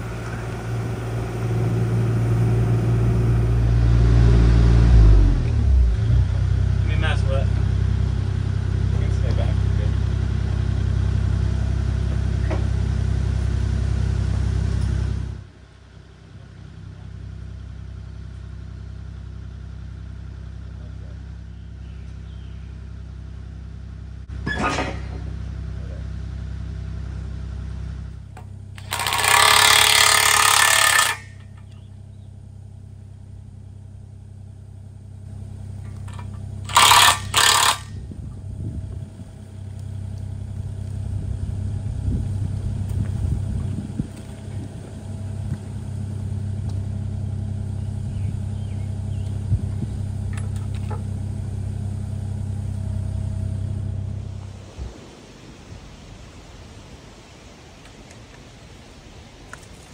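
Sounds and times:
excavator engine running: 0.0 - 55.6
loud bursts of noise: 28.8 - 31.4, 36.6 - 38.1.

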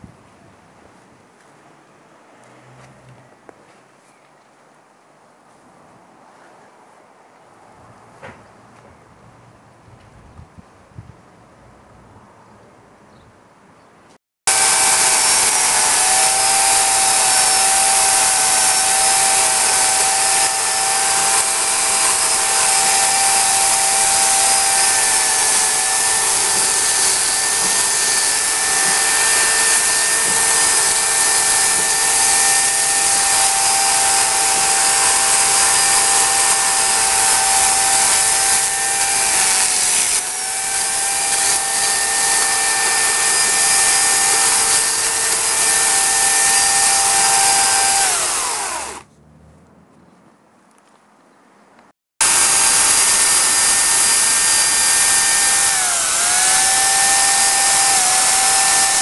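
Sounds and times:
electric chainsaw cutting wood: 14.5 - 49.1, 52.2 - 59.0.

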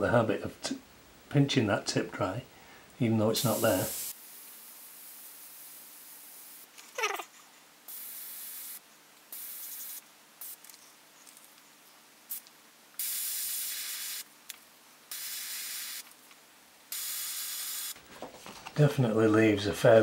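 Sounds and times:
airbrush hissing bursts: 3.4 - 6.7, 7.9 - 10.6, 12.3 - 14.3, 15.1 - 16.0, 16.9 - 18.0.

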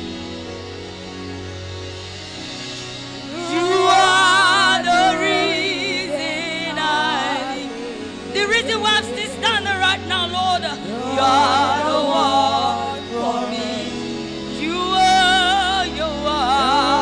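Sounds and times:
low accompaniment chords: 0.0 - 17.0
person singing with vibrato: 3.2 - 17.0.

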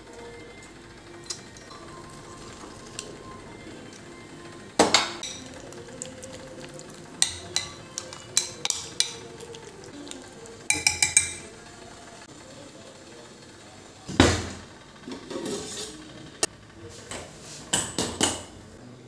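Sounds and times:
spoon clinking in glass bowl: 10.7 - 11.5.

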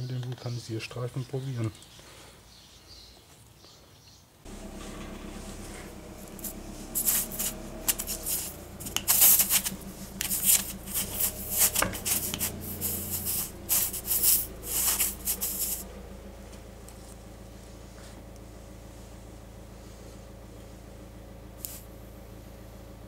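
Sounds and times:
tool scraping rubber tyre: 4.7 - 15.9.

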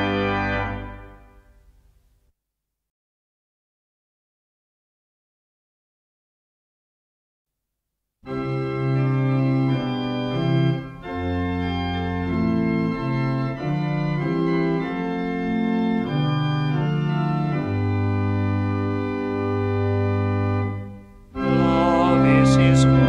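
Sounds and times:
organ chords: 0.0 - 2.2, 8.2 - 23.0.

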